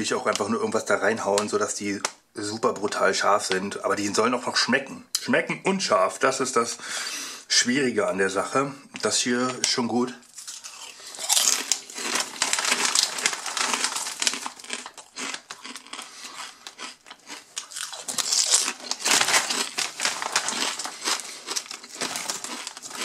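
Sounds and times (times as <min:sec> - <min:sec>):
chip bag crinkling: 0:10.2 - 0:23.0.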